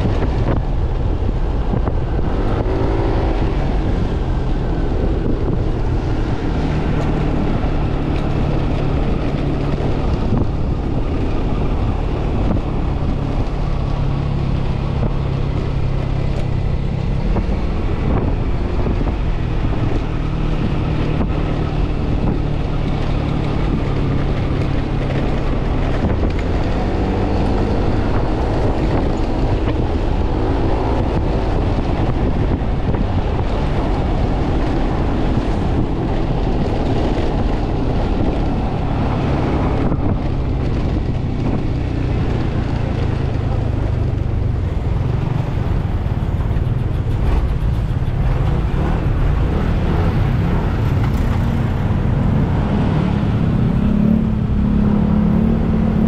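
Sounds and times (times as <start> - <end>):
wind on microphone: 0.0 - 56.0
scooter engine running: 39.8 - 54.5.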